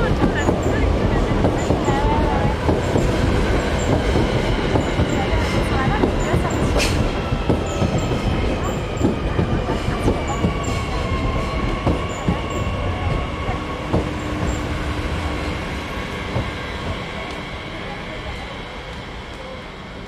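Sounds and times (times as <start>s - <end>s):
train wheels clicking over rail joints: 0.0s - 14.8s
electric train passing: 0.0s - 20.0s.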